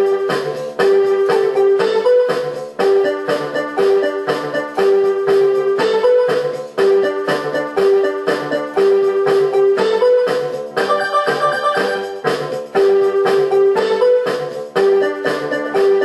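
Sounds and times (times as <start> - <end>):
keyboard melody with steady beat: 0.0 - 16.0.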